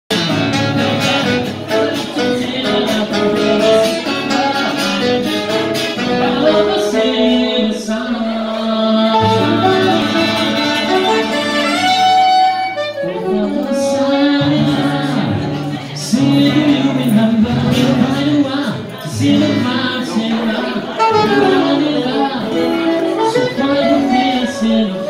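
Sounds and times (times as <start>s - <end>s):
acoustic guitar: 0.1s - 25.0s
man singing into a microphone: 0.1s - 25.0s
saxophone: 0.2s - 7.0s, 9.0s - 15.3s, 20.8s - 25.0s.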